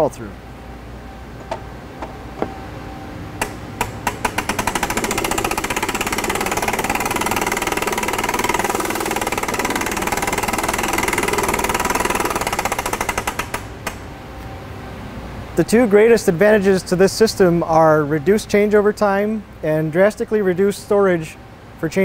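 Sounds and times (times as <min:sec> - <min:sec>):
fast mechanical clicking: 0:03.4 - 0:14.0.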